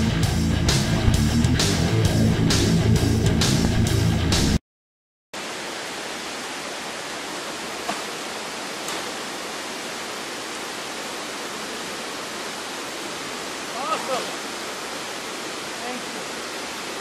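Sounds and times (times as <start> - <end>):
guitar music: 0.0 - 4.6
waterfall rushing: 5.4 - 17.0.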